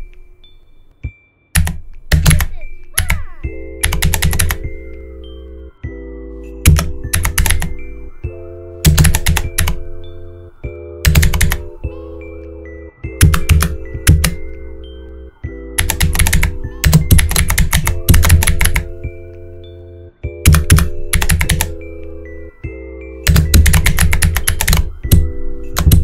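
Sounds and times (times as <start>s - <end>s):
computer keyboard typing: 1.6s - 4.7s, 6.6s - 7.8s, 8.8s - 9.8s, 11.0s - 11.8s, 13.2s - 14.6s, 15.8s - 18.9s, 20.4s - 21.8s, 23.2s - 26.0s.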